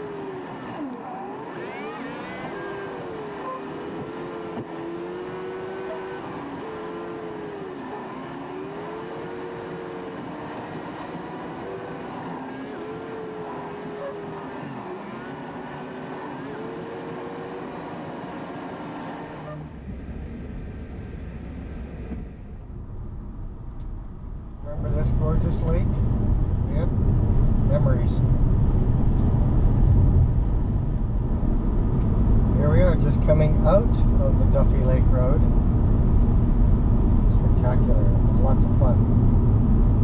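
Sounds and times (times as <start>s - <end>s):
motorcycle engine revving: 0.0s - 19.9s
low rumble: 19.6s - 40.0s.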